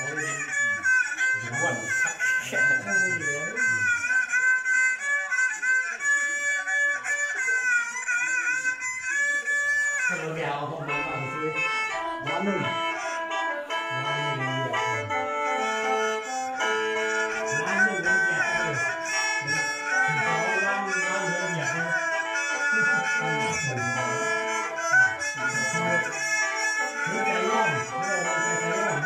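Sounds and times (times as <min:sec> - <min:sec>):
mouth organ playing chords: 0:00.0 - 0:04.1, 0:08.6 - 0:29.0
bowed fiddle: 0:00.0 - 0:29.0.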